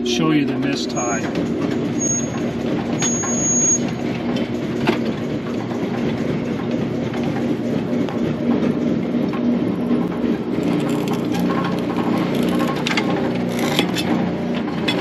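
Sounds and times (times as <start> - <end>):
knotter rattling and clanking: 8.1 - 15.0.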